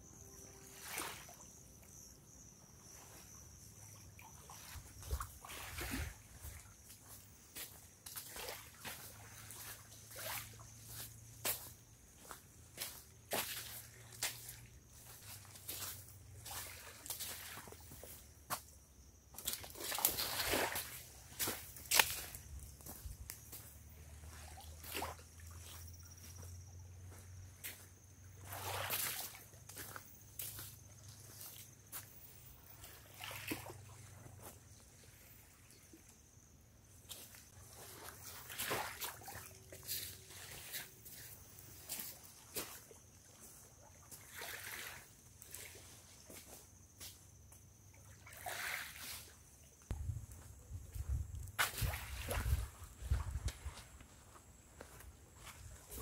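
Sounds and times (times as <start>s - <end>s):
faint insect trill: 0.0s - 56.0s
footsteps on sandy path: 4.9s - 18.7s, 19.4s - 32.2s, 50.2s - 56.0s
footsteps crunching on leaves: 10.8s - 18.1s, 19.5s - 23.7s.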